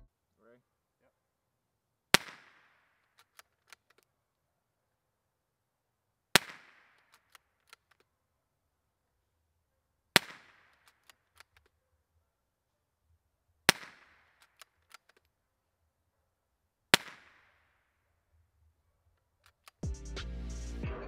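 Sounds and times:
suppressed rifle shots: 2.1 - 4.0, 6.3 - 8.0, 10.2 - 11.7, 13.7 - 15.2, 16.9 - 17.6.

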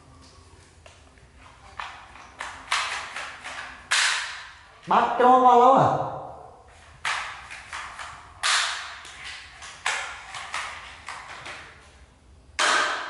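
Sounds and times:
knocks and slaps in tiled room: 0.8 - 4.9, 6.8 - 12.0, 12.6 - 13.0.

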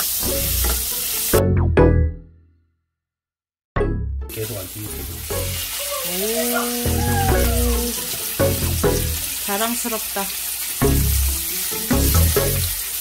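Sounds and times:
fish frying in oil: 0.0 - 1.4, 4.3 - 7.0, 7.7 - 13.0.

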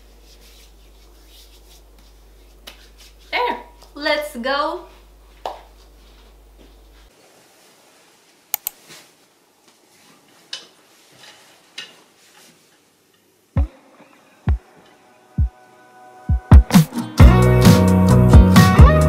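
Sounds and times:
clothes rustling: 4.9 - 13.0.

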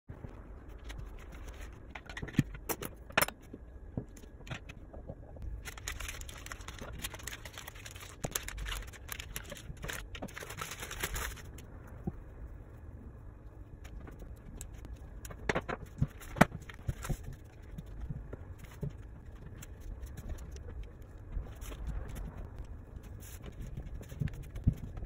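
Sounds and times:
plastic sheet crackling: 5.4 - 11.7.

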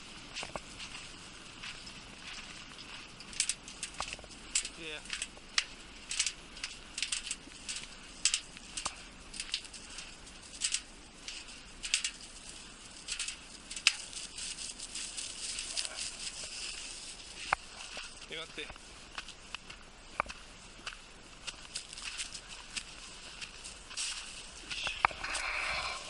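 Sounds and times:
footsteps crunching in snow: 0.0 - 26.0.

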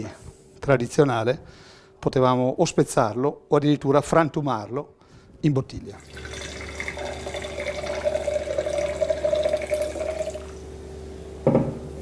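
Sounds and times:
wine pouring into a glass: 6.0 - 10.7.

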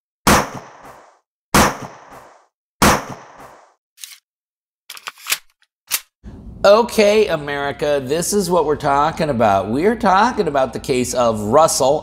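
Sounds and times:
gunshot bangs with echo: 0.3 - 2.2, 2.8 - 3.6.

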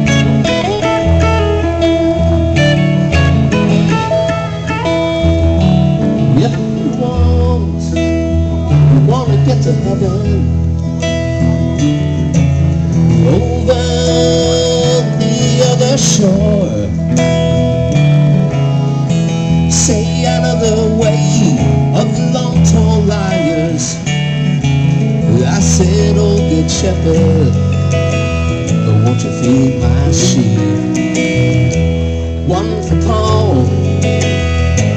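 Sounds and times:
electric guitar lead lines: 0.0 - 34.9
guitar and bass accompaniment: 0.0 - 34.9.

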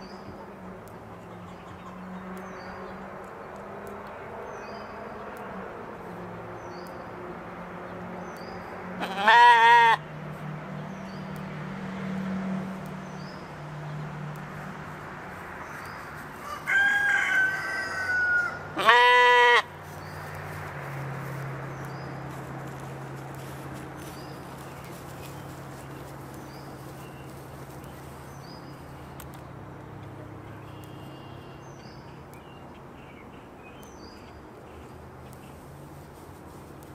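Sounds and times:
sheep bleating: 9.0 - 10.0, 18.8 - 19.7.

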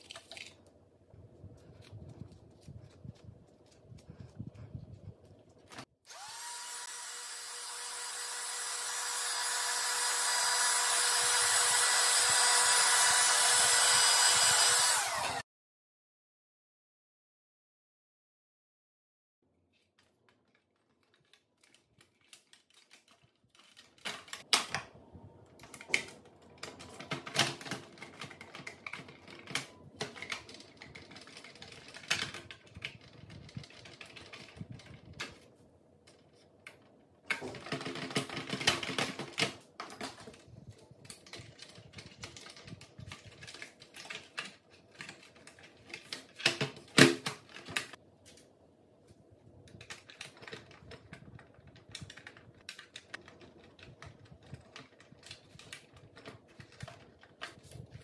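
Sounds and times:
plastic parts clicking and rattling: 0.0 - 0.8, 19.7 - 48.6, 49.4 - 58.0.

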